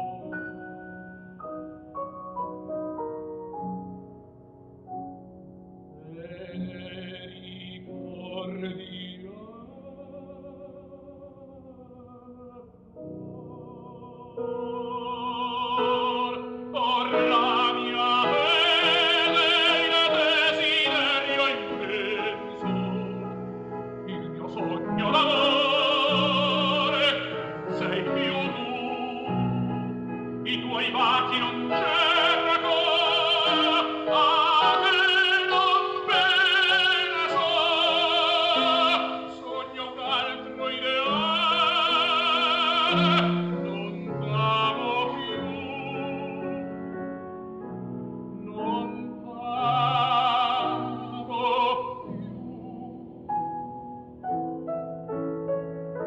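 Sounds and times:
opera singer with vibrato: 0:13.3 - 0:46.7, 0:48.4 - 0:53.0.

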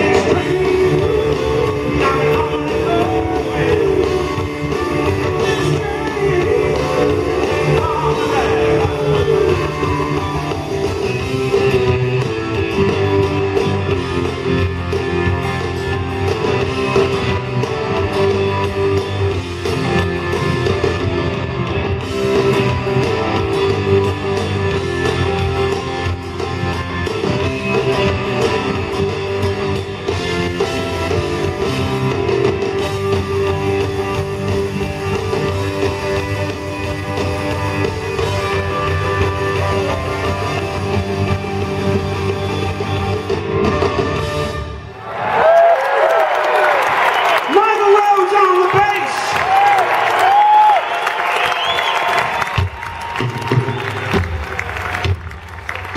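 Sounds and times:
electric guitar: 0:00.0 - 0:44.8
live rock band playing: 0:00.0 - 0:45.0, 0:46.2 - 0:55.9.

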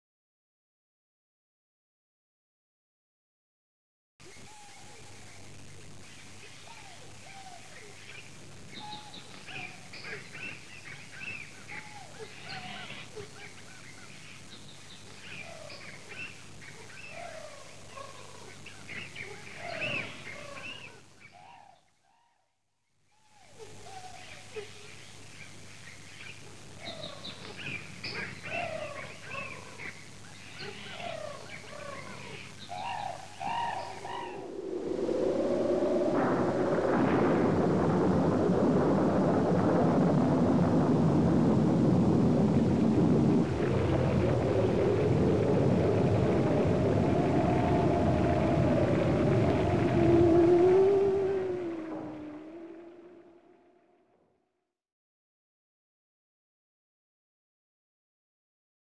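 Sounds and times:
birds calling and chirping: 0:06.1 - 0:21.8, 0:25.4 - 0:34.5
steady rushing rumble: 0:34.4 - 0:53.2.

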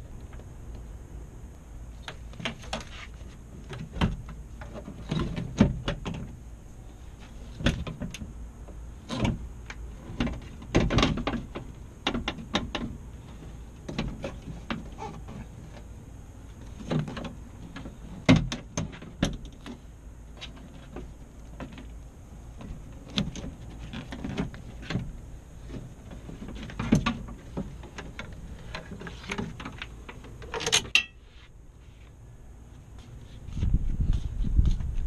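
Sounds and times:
clicks and rattles of car parts: 0:02.0 - 0:06.4, 0:07.2 - 0:15.9, 0:16.6 - 0:31.2
metal part clattering: 0:30.4 - 0:31.2.

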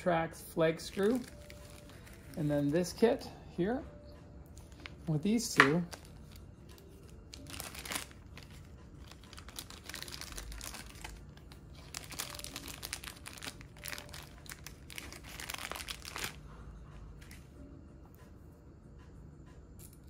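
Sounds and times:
plastic bag crinkling: 0:00.9 - 0:03.0, 0:07.3 - 0:16.4.

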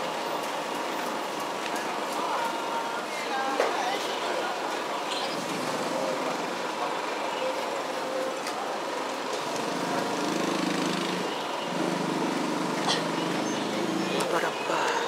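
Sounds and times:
street traffic hum: 0:00.0 - 0:15.0
small engine running: 0:09.5 - 0:14.3.

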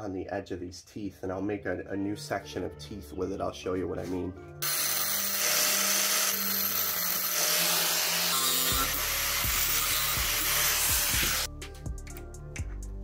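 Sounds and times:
angle grinder cutting metal: 0:04.6 - 0:11.5.

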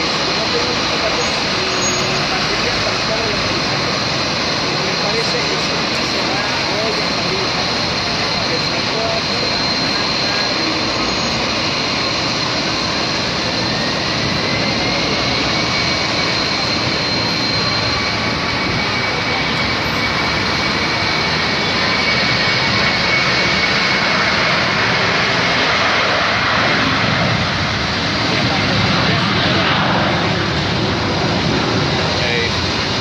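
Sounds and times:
high jet engine whine: 0:00.0 - 0:33.0
jet engines roaring: 0:00.0 - 0:33.0.

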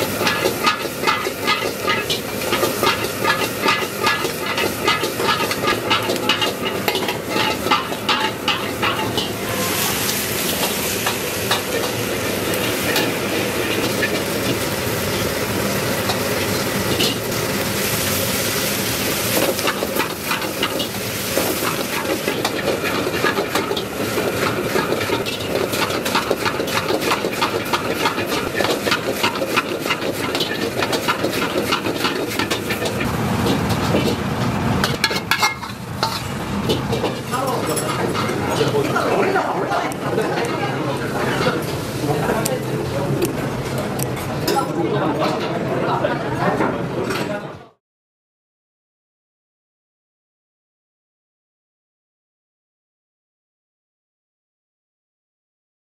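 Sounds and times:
noodles sizzling: 0:00.0 - 0:43.6.

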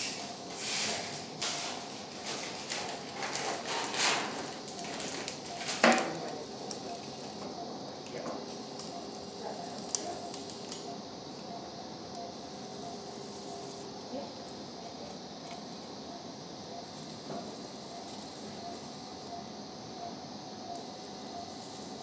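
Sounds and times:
electrocautery pencil sizzling: 0:03.2 - 0:07.5, 0:08.5 - 0:19.6, 0:20.7 - 0:22.0.

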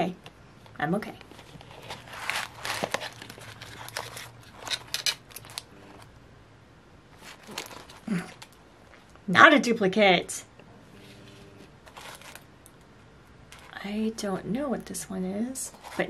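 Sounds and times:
paper and cardboard packaging rustling: 0:01.2 - 0:06.1, 0:07.2 - 0:08.6, 0:11.2 - 0:12.5, 0:13.5 - 0:13.8, 0:15.7 - 0:16.0.

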